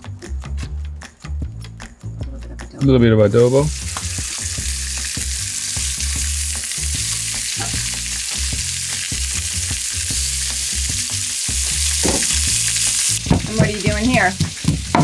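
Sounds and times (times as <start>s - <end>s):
fish fillets sizzling in oil: 3.5s - 15.0s.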